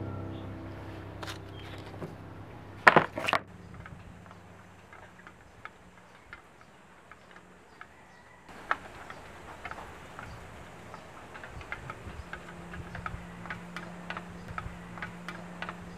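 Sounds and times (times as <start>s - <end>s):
background music: 0.0s - 5.0s.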